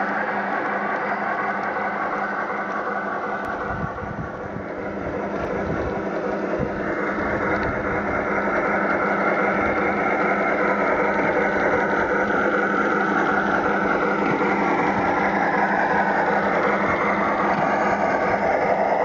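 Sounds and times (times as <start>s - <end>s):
model train wheels running: 0.0s - 19.0s
simulated steam locomotive sound: 0.0s - 19.0s.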